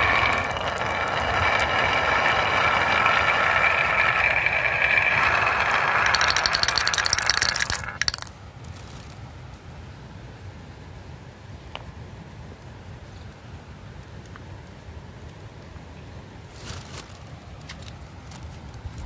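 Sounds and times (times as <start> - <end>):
marbles clattering: 0.0 - 8.3
marbles rolling on wooden track: 0.0 - 8.3.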